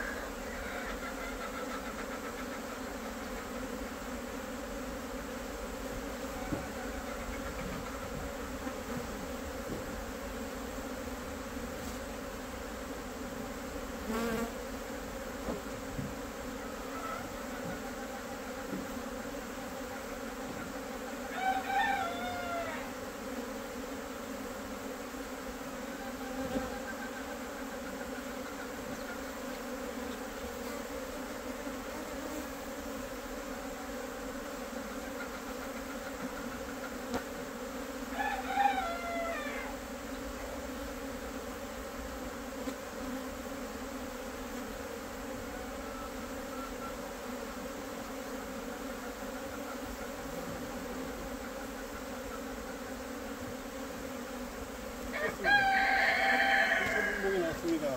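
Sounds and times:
rooster crowing: 0.0s - 1.6s, 16.8s - 17.4s, 21.2s - 23.0s, 38.1s - 39.8s, 55.1s - 57.9s
bees swarming buzz: 0.0s - 57.9s.

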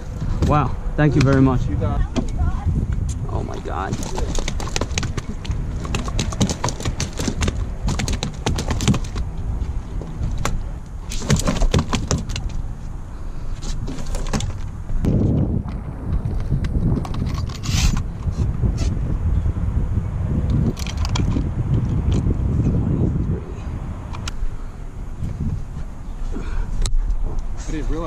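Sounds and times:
wind rumble on microphone: 0.0s - 28.0s
landing net rattling: 3.9s - 9.3s, 10.3s - 12.6s.

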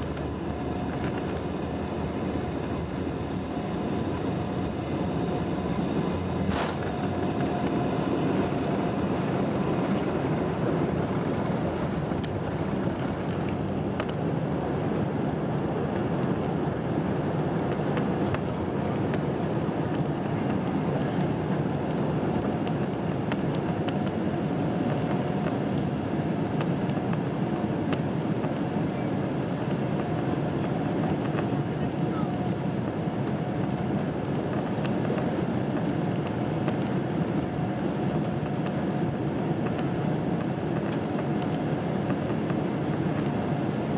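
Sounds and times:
jet engines at takeoff thrust: 0.0s - 43.9s
rushing air: 6.2s - 7.2s.

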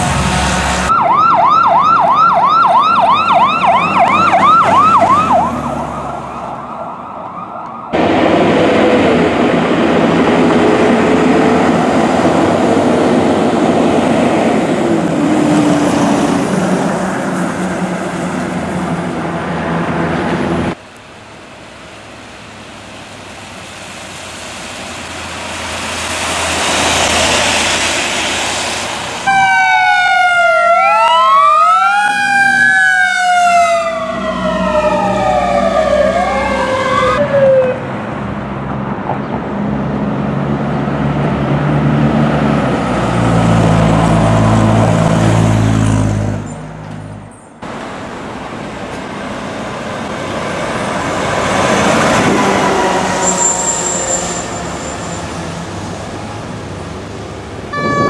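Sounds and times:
heavy truck engine: 0.0s - 1.1s, 7.9s - 29.5s, 32.6s - 58.0s
wailing siren: 0.0s - 11.6s, 29.2s - 38.0s, 51.2s - 55.5s, 57.7s - 58.0s
electronic siren yelping: 0.9s - 8.0s, 29.3s - 37.8s, 57.7s - 58.0s
tyre and traffic noise: 32.3s - 58.0s.

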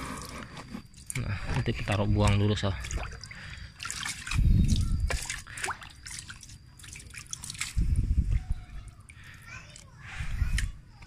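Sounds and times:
water dripping and sloshing: 0.2s - 11.0s.

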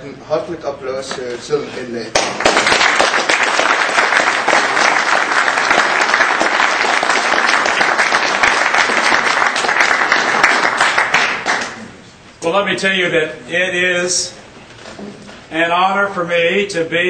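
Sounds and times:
audience applauding: 2.1s - 11.9s.

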